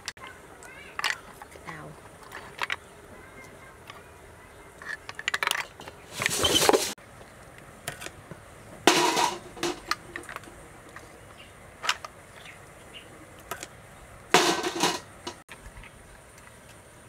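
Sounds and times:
rattling scrapes: 4.8 - 7.0, 8.9 - 10.4, 14.4 - 15.4
shells clattering in plastic basket: 8.9 - 10.4, 14.4 - 15.4.

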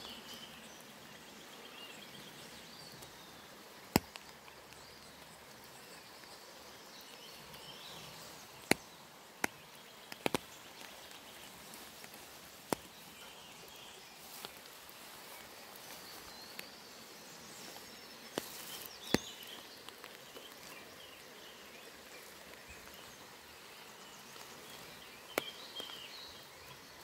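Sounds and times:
wet woodland ambience: 0.0 - 27.0
sharp clicks: 3.9 - 4.6, 8.6 - 10.9.

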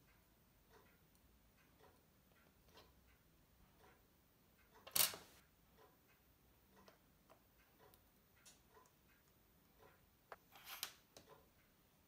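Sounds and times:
pocket watch ticking: 0.0 - 10.5
tool scraping: 10.3 - 11.0.

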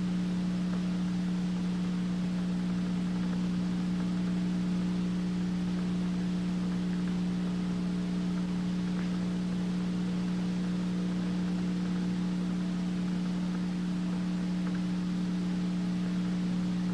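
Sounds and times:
low electronic hum: 0.0 - 16.9.

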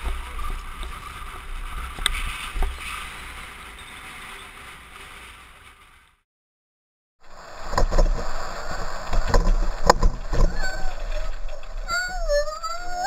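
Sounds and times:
bike tyres on dirt road: 0.0 - 6.2, 7.2 - 11.9
wind rumble on camera: 0.0 - 6.2, 7.2 - 13.0
bike rattling: 7.3 - 13.0.

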